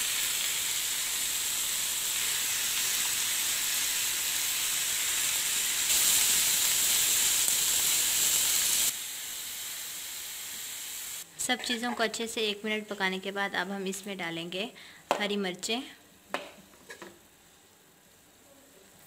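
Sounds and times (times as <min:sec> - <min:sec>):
food sizzling in a frying pan: 0:00.0 - 0:13.2.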